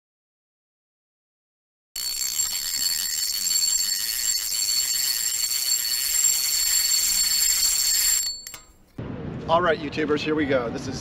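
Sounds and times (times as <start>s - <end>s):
high-pitched ringing tone: 2.0s - 8.9s.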